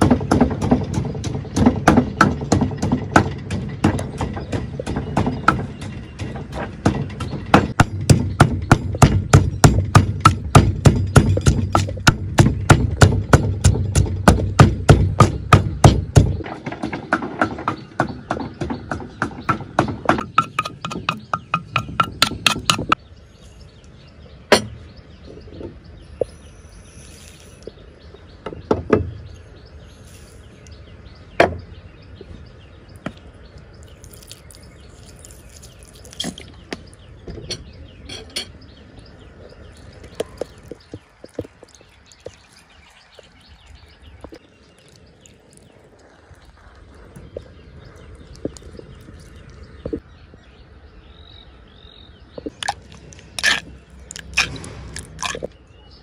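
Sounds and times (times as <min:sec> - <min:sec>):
knocks against mortar: 0:00.0 - 0:23.0
pestle pounding in stone mortar: 0:00.0 - 0:23.0, 0:52.4 - 0:55.5.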